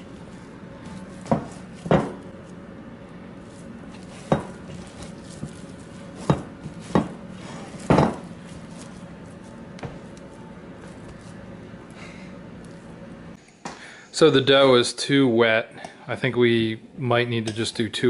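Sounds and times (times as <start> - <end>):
hands kneading sticky dough: 0.0 - 13.3.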